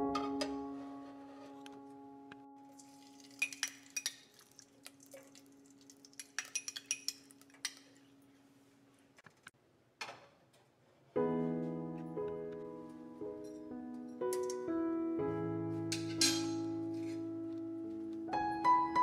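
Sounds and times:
spoon clinking on metal pot: 0:03.2 - 0:04.4, 0:06.0 - 0:07.9, 0:16.0 - 0:16.6.

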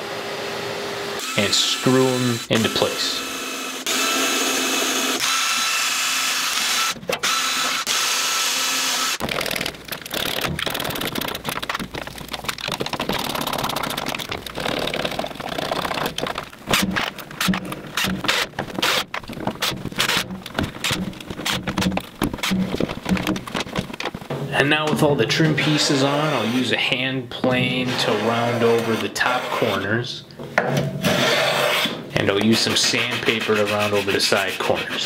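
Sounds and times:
cordless drill into wood: 0:01.2 - 0:09.2.

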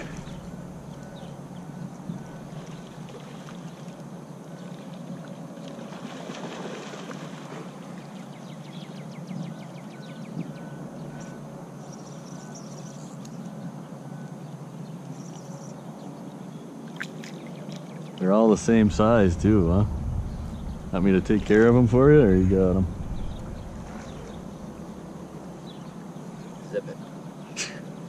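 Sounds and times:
water lapping against boat hull: 0:00.0 - 0:01.3.

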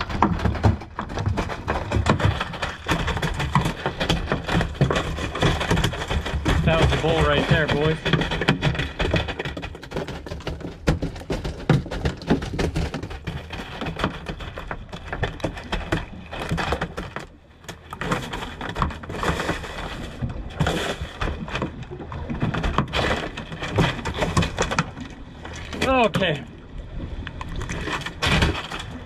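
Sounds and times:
fish thumping in a box: 0:00.0 - 0:26.4, 0:27.6 - 0:29.0.

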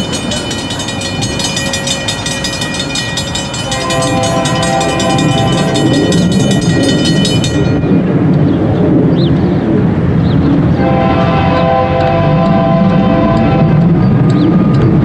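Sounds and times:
diesel locomotives rumbling: 0:00.0 - 0:15.0
locomotive air horn chord: 0:03.7 - 0:06.4, 0:10.8 - 0:14.0.

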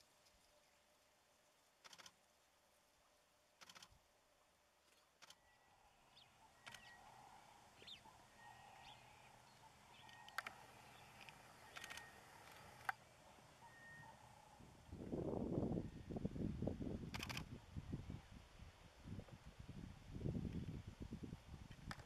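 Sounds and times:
sharp clicks: 0:01.8 - 0:02.2, 0:03.6 - 0:03.9, 0:06.6 - 0:06.9, 0:10.0 - 0:13.0, 0:17.1 - 0:17.5.

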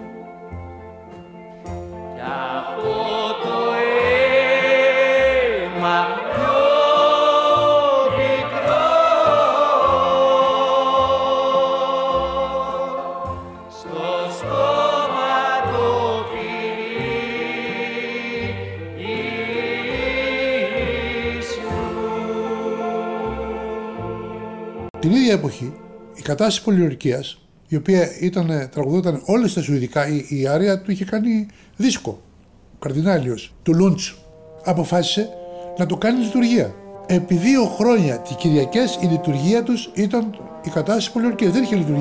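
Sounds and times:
instrumental accompaniment: 0:00.0 - 0:26.9, 0:33.8 - 0:42.0
choir singing: 0:02.1 - 0:26.4, 0:36.0 - 0:42.0.

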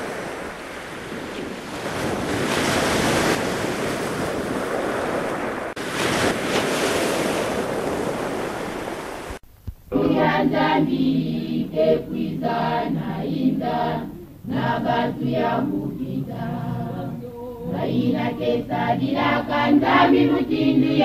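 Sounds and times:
choir singing: 0:09.9 - 0:21.0.

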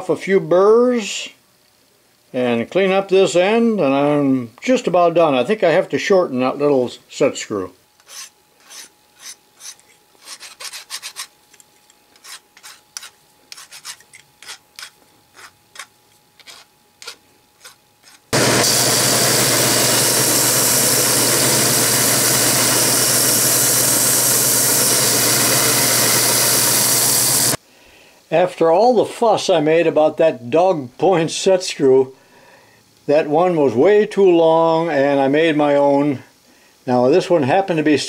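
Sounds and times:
hand file rasping on metal: 0:08.0 - 0:11.4, 0:12.2 - 0:18.3
belt sander running: 0:17.6 - 0:27.6.

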